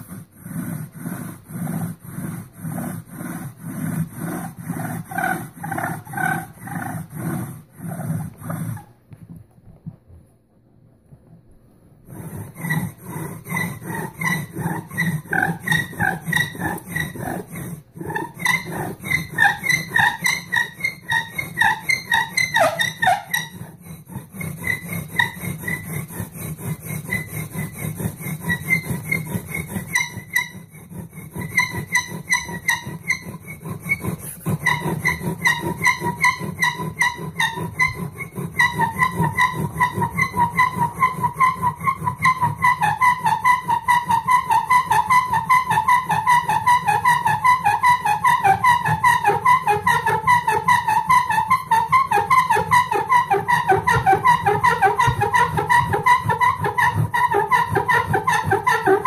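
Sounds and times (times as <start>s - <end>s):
bow drill spindle squeaking: 12.2s - 59.0s.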